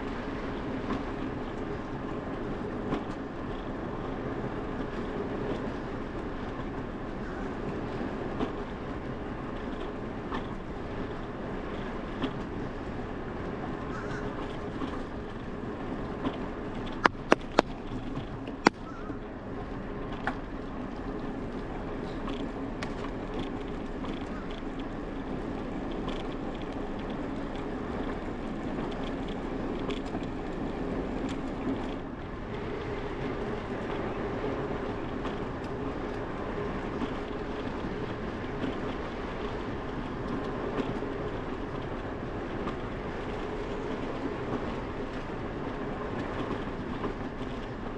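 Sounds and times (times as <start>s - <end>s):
sharp clicks: 17.0s - 17.7s.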